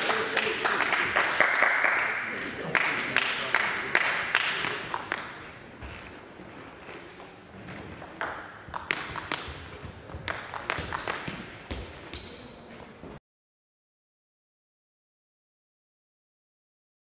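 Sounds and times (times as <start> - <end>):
people clapping: 0.0 - 5.3
table tennis ball clicking: 4.6 - 5.4, 8.0 - 11.6
shoes squeaking on floor: 5.8 - 13.2.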